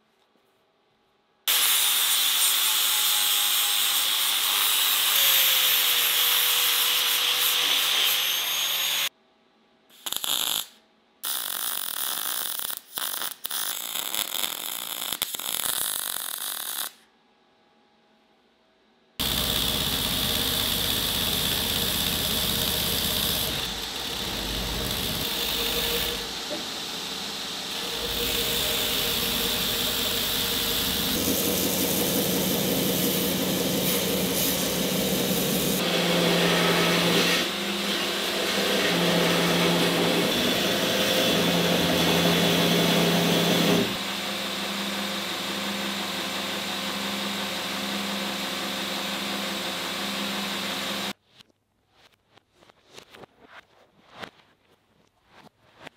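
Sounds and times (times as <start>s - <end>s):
belt grinder grinding metal: 19.2s - 37.6s.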